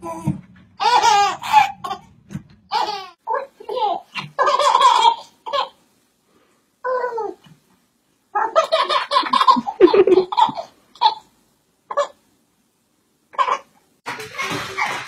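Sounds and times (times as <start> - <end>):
baby laughing: 0.0 - 2.1, 2.7 - 5.8, 8.4 - 11.2, 13.3 - 15.0.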